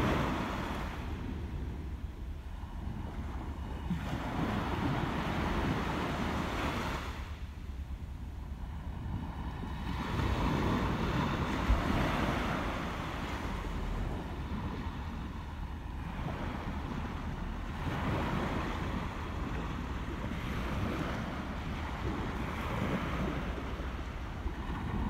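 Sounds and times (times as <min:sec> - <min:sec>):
surf washing against rocks: 0:00.0 - 0:01.6
wind on microphone: 0:00.0 - 0:25.0.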